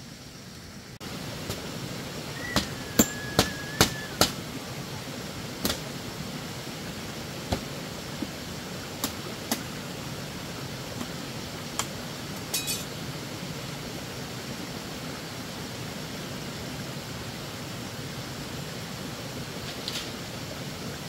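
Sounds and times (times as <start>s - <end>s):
steady background hiss: 0.0s - 21.0s.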